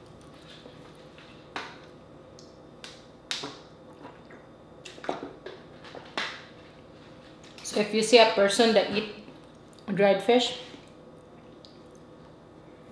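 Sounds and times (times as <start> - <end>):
close-miked eating clicks: 2.3 - 3.4.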